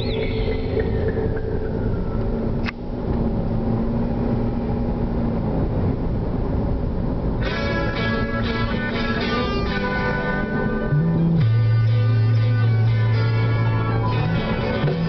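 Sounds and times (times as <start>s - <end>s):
guitar music: 0.0s - 3.8s, 7.4s - 15.0s
road and engine rumble in car: 0.0s - 15.0s.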